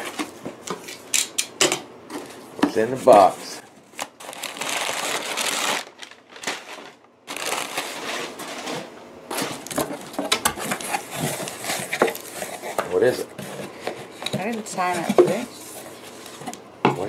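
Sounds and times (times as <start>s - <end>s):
packing paper rustling: 2.1s - 16.6s
cardboard boxes knocking and scraping: 8.3s - 15.5s.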